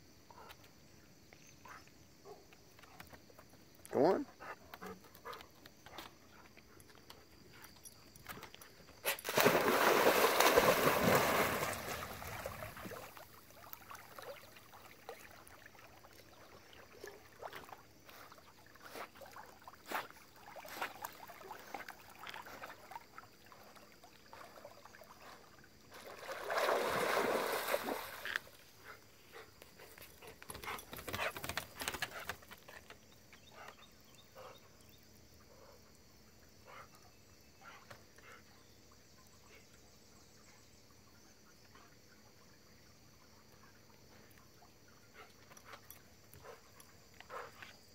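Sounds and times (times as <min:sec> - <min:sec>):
faint water sounds of swimming: 0:00.0 - 0:47.9
dog splashing into water: 0:09.1 - 0:14.4, 0:26.0 - 0:28.4.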